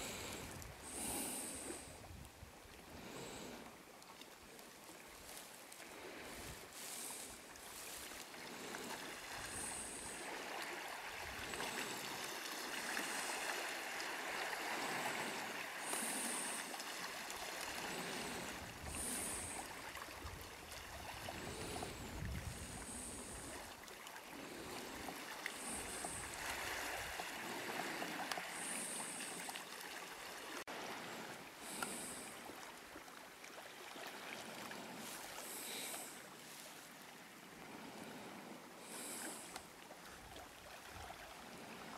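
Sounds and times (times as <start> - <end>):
waves washing through slushy ice: 4.4 - 41.9.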